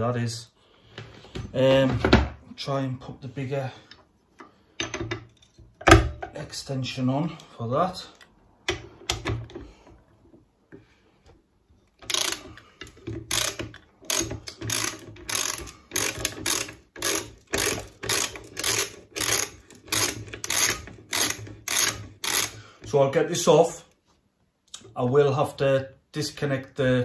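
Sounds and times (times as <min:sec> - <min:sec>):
ratchet wrench clicking: 0:12.0 - 0:22.6.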